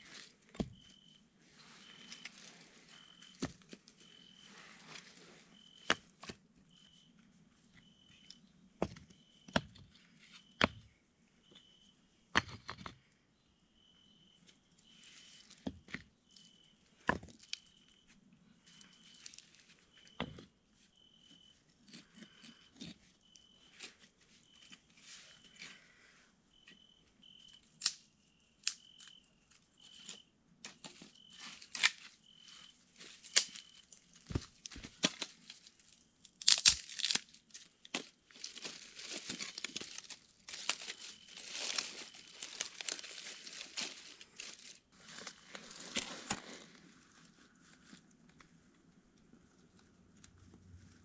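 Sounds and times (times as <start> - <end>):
insect chirping: 0.0 - 45.9
dry leaves rustling: 36.4 - 48.0.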